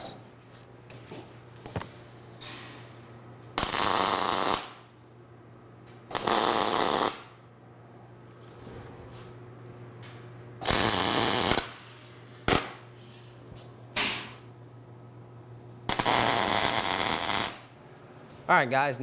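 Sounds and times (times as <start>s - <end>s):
steady low hum: 0.0s - 19.0s
welder crackling arc bursts: 3.6s - 4.9s, 6.1s - 7.4s, 10.6s - 11.9s, 12.5s - 12.8s, 15.9s - 17.8s.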